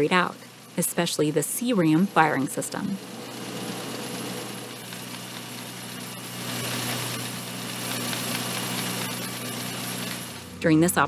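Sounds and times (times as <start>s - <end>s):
machinery humming: 0.0s - 11.0s.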